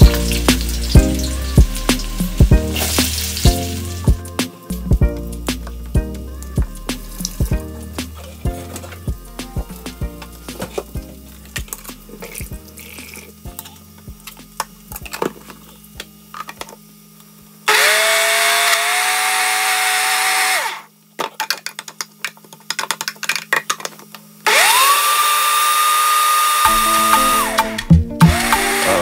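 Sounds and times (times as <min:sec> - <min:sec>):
blender motor whining: 0:17.7 - 0:20.9, 0:24.4 - 0:29.0.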